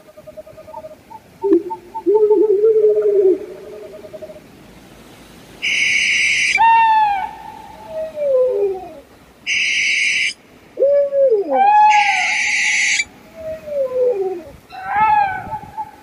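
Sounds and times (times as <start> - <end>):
owl screeching: 5.6 - 7.3, 9.5 - 10.4, 11.5 - 13.1.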